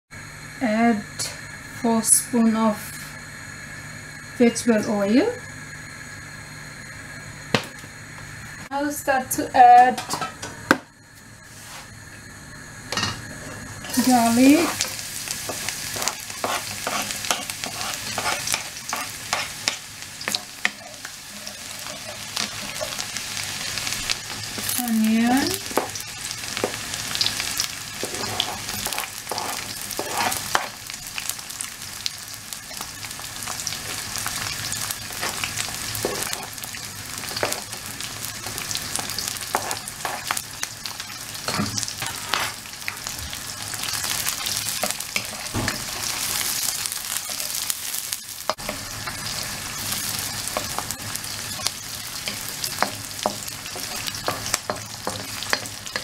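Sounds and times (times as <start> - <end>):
food sizzling in hot oil: 0.2 - 56.0
wooden spatula scraping a wok: 13.3 - 23.3, 28.0 - 30.8, 39.2 - 40.4.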